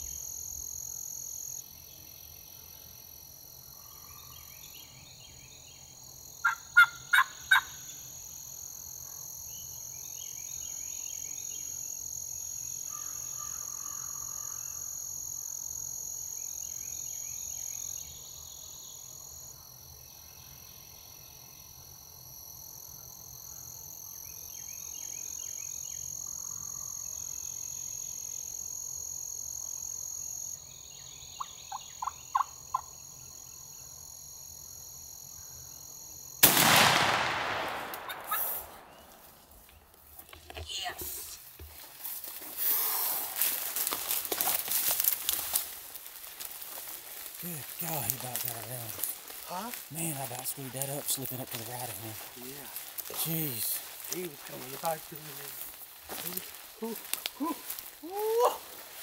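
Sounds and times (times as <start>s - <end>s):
turkey yelps: 6.4s - 7.8s, 38.0s - 38.6s.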